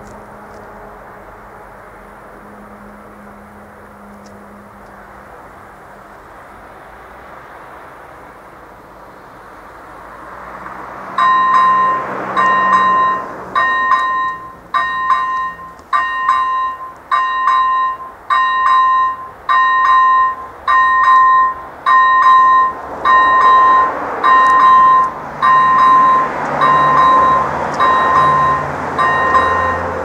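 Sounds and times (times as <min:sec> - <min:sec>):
level-crossing warning bell ringing: 0:11.2 - 0:30.0.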